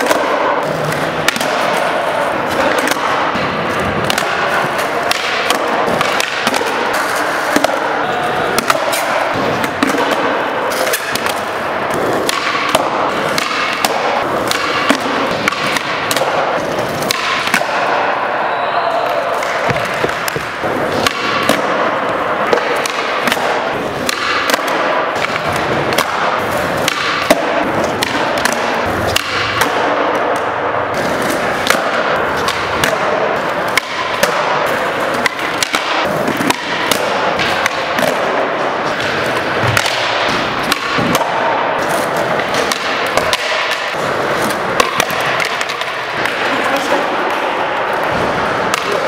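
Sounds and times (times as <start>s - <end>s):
skateboard pops and clacks: 0.0s - 18.1s
background din of hall: 0.0s - 49.0s
skateboard wheels rolling on concrete: 40.4s - 49.0s.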